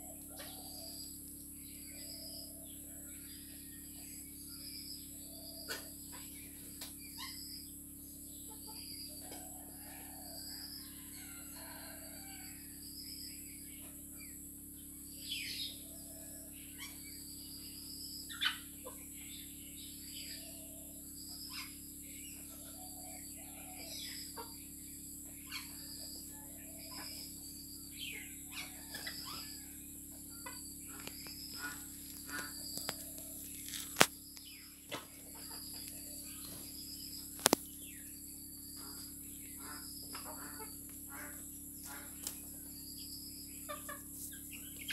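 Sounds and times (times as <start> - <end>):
chickens clucking: 0.0 - 1.0, 5.6 - 7.4, 18.3 - 19.3, 22.4 - 24.6, 25.2 - 34.1, 34.8 - 37.8, 38.8 - 42.7, 43.6 - 44.9
chickens pecking grain on dirt: 28.5 - 37.8
sharp clicks: 37.4 - 37.7.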